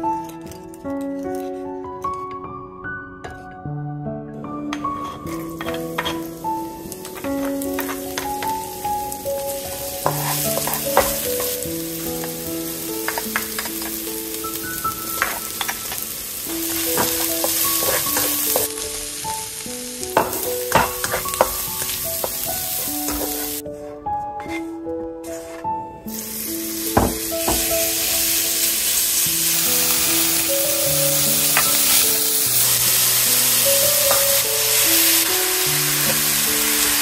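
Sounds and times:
slow gentle melody: 0.0 - 37.0
food sizzling in hot oil: 5.0 - 23.6, 26.1 - 37.0
spatula tapping and scraping: 9.7 - 11.6, 13.0 - 14.0, 16.7 - 18.7, 20.2 - 23.6.

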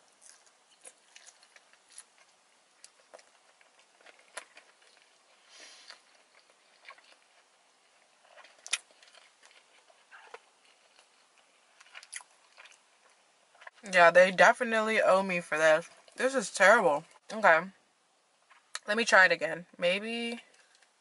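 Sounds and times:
person chewing food: 0.0 - 13.8, 18.3 - 18.8.

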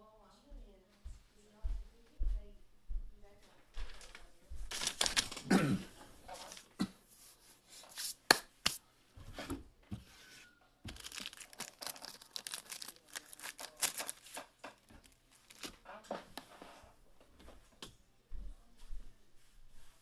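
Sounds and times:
packaging crinkling and tearing: 4.7 - 5.5, 10.9 - 15.8.

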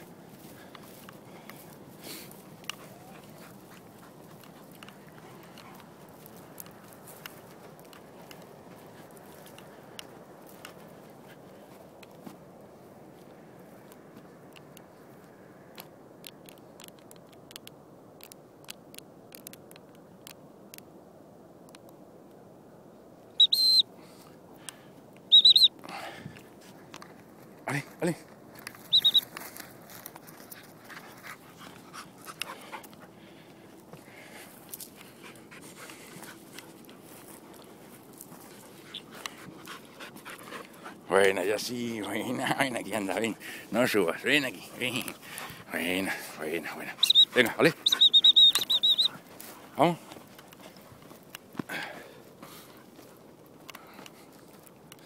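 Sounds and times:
footsteps on dry ground: 0.0 - 15.5, 25.9 - 55.0
dog panting: 0.4 - 7.3, 30.3 - 51.2.

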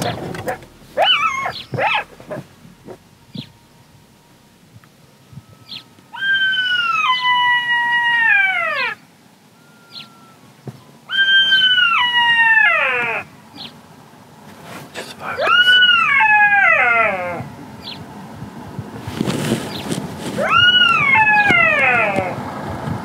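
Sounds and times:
jackal howling: 0.0 - 3.6, 6.1 - 9.0, 11.1 - 13.7, 15.2 - 18.0, 20.4 - 22.5
distant jackal calls: 0.0 - 3.7, 5.6 - 9.0, 11.1 - 13.8, 15.0 - 18.1, 19.7 - 22.5.

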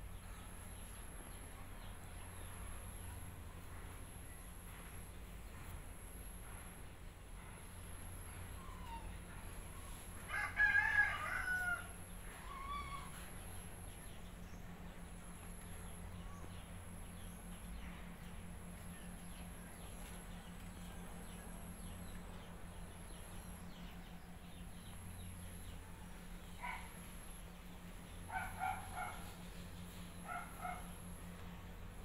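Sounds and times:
low hum: 0.0 - 32.0
dog barking: 26.6 - 27.0, 28.3 - 29.4, 30.2 - 31.0.

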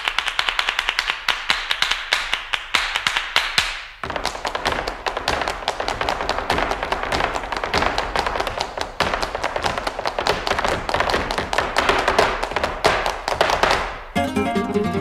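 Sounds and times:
rapid tapping and knocking: 0.0 - 14.0
plucked flamenco guitar music: 14.1 - 15.0.

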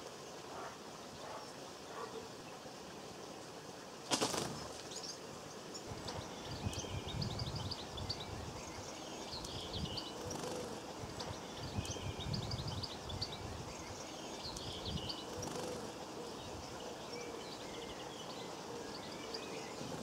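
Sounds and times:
small birds twittering: 0.0 - 20.0
bird wingbeats: 4.0 - 5.0, 10.2 - 11.4, 15.3 - 16.0.

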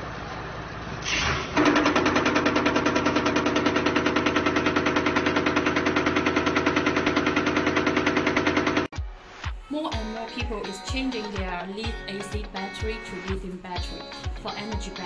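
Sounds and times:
vibration table hum: 1.5 - 8.9.

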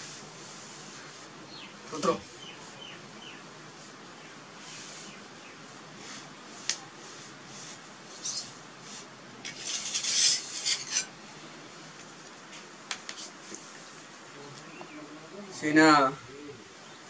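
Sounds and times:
scratchy rustling and scraping: 6.0 - 11.1.

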